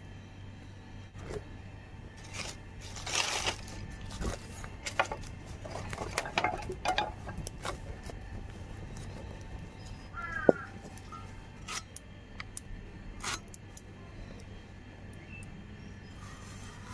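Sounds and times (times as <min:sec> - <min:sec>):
steady low hum: 0:00.0 - 0:16.9
wooden sticks clicking and knocking: 0:02.3 - 0:08.2.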